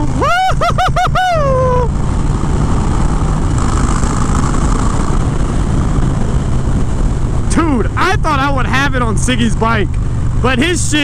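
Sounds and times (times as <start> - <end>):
warbling vocal whoop: 0.0 - 2.0
motorcycle engine at road speed: 0.0 - 11.0
wind noise: 0.0 - 11.0.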